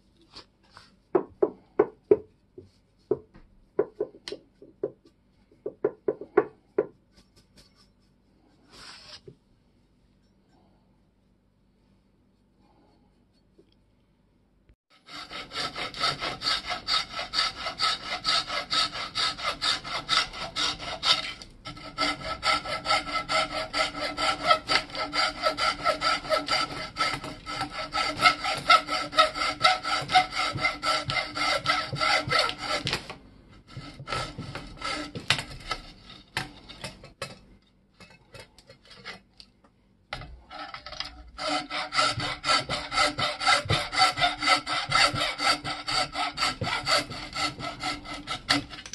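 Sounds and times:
hacksaw sawing: 14.9s - 37.2s, 40.2s - 48.9s.

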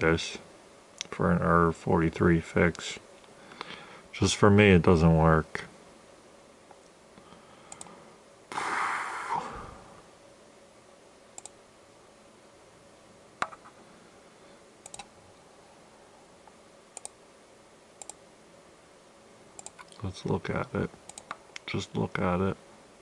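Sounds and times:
computer mouse clicks: 7.7s - 7.9s, 11.4s - 11.6s, 13.4s - 13.7s, 14.8s - 15.1s, 17.0s - 17.2s, 18.0s - 18.2s, 19.6s - 20.0s, 21.1s - 21.7s.

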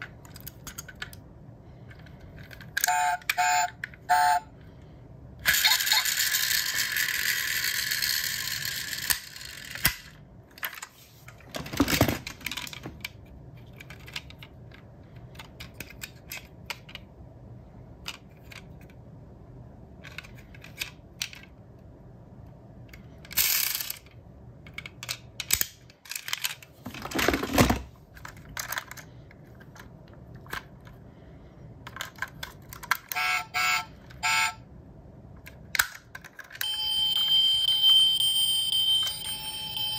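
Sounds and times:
model car parts clicking: 0.0s - 1.3s, 12.4s - 17.1s, 18.0s - 19.0s, 20.0s - 21.6s, 22.9s - 26.7s, 28.2s - 31.0s, 31.8s - 33.2s, 35.4s - 36.7s.

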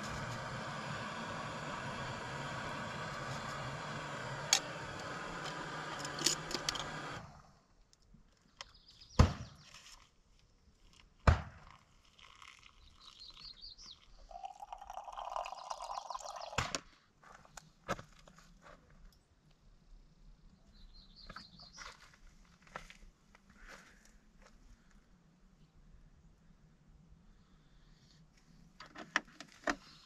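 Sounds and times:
hot water pouring into coffee dripper: 0.0s - 7.2s, 12.0s - 16.6s
steady hum and hiss: 0.0s - 7.7s.

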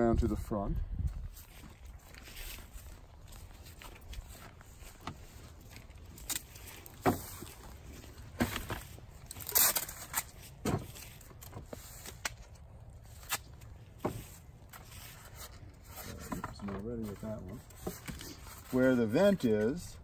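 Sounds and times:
footsteps on dry leaves: 1.1s - 16.0s.

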